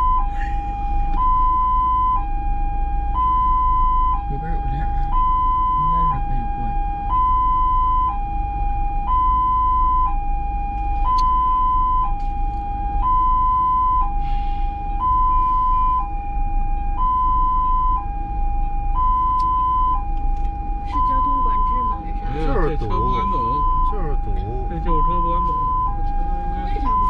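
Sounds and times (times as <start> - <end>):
ambulance siren two-tone wail: 0.0 - 27.0
low rumble: 0.0 - 27.0.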